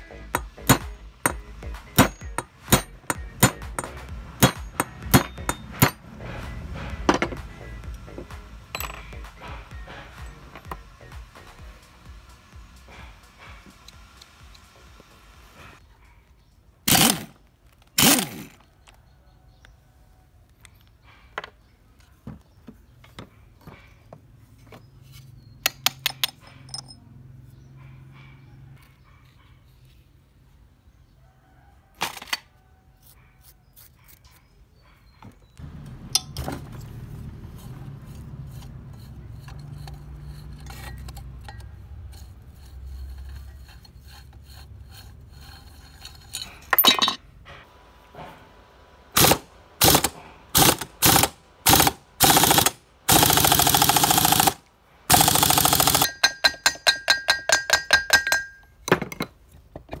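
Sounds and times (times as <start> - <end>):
pneumatic impact wrench hammering: 0.0 - 14.7, 16.9 - 17.4, 18.0 - 18.6, 49.1 - 58.6.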